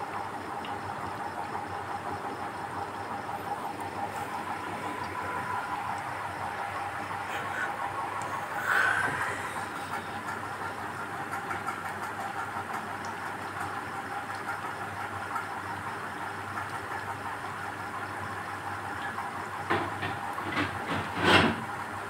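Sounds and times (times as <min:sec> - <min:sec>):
food deep-frying in oil: 0:10.1 - 0:22.0.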